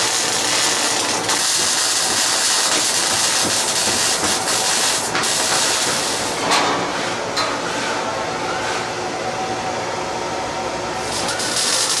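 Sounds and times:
welding arc crackling: 0.0s - 6.4s, 11.0s - 12.0s
steady background hum: 0.0s - 12.0s.

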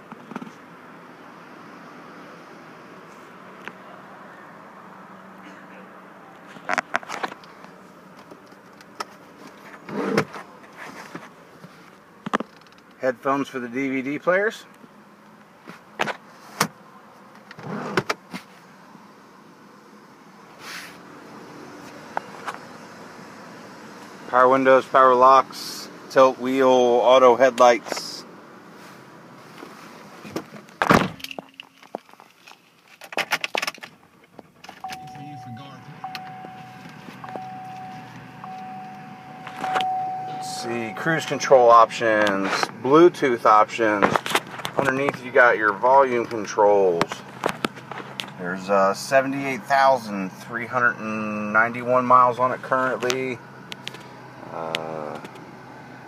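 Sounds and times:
low steady hum: 34.6s - 56.0s
low hum: 34.8s - 43.4s
sharp clicks of car controls: 36.1s - 40.4s.

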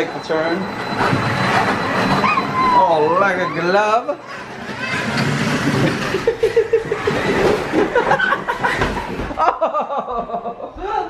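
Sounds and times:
rc truck driving on tile: 0.7s - 9.4s
plastic sled scraping: 1.0s - 9.4s
people laughing: 5.9s - 11.0s.

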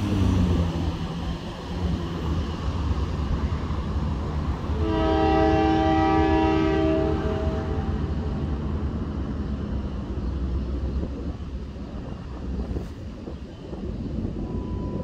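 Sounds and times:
road traffic rumble: 0.0s - 15.0s
locomotive air horn: 4.8s - 8.5s.

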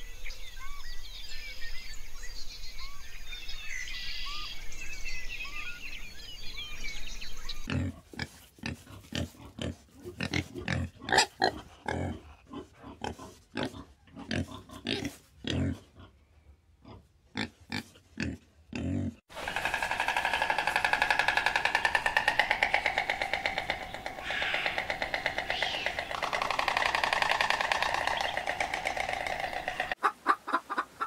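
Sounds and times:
birds chirping: 0.0s - 7.7s, 19.4s - 30.1s
animal grunting: 7.7s - 16.2s, 16.8s - 30.0s.

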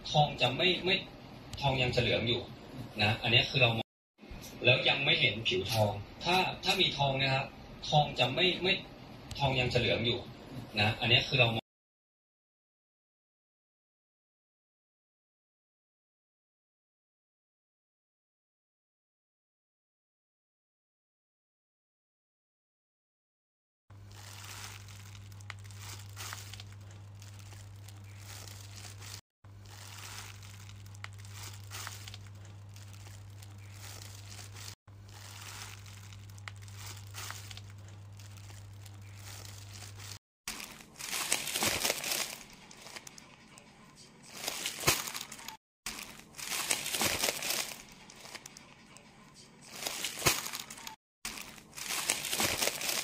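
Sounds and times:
plastic wrapping crinkling: 24.0s - 43.4s, 44.3s - 48.7s, 49.6s - 53.0s.

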